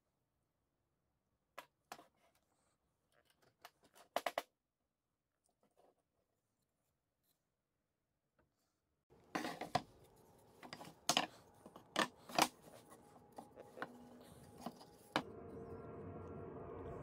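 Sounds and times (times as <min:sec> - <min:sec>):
steady hum: 0:09.9 - 0:17.0.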